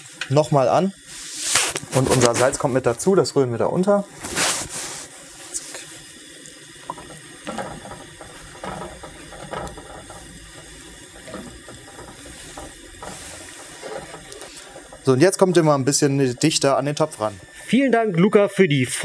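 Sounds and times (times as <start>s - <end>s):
gas burner hiss: 0.0s - 19.0s
water swishing: 4.1s - 17.9s
wooden spoon knocking pot: 6.8s - 16.6s.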